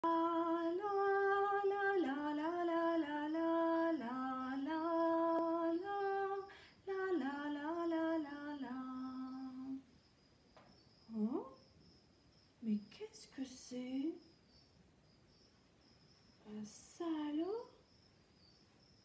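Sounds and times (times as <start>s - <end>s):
woman singing wordless melody: 0.0s - 9.9s, 11.1s - 11.6s, 12.6s - 14.2s, 16.4s - 17.8s.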